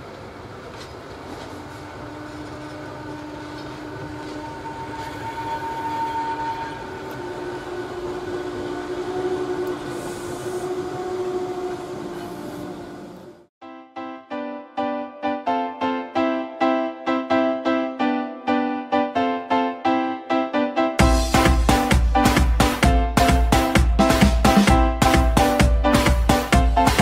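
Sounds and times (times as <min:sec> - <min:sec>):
electric locomotive train passing: 0:00.0 - 0:13.5.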